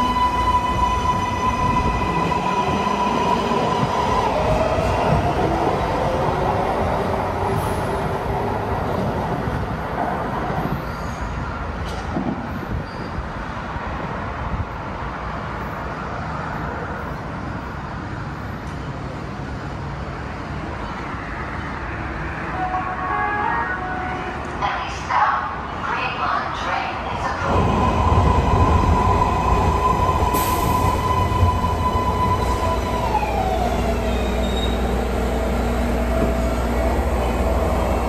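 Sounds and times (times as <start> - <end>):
train whining tone: 0.0 - 8.2, 27.2 - 38.0
train rumble: 0.0 - 15.3, 23.8 - 38.0.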